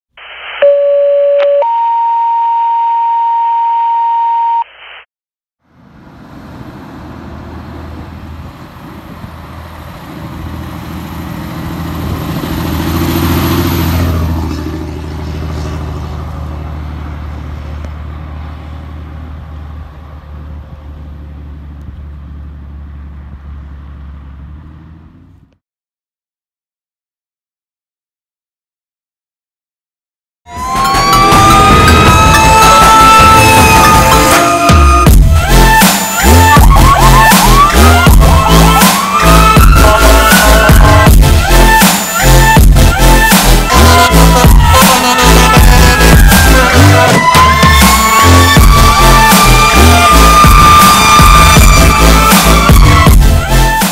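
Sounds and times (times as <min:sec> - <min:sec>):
two-tone pager tones over radio: 0:00.3 - 0:05.0
fire engine diesel driving past: 0:05.6 - 0:25.5.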